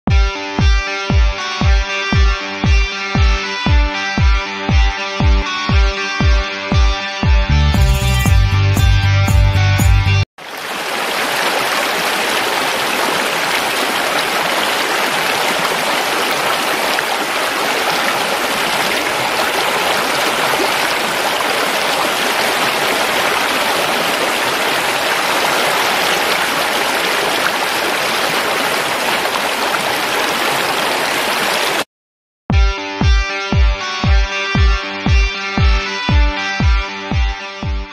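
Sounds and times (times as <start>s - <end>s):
stream rushing over stones: 10.4s - 31.8s.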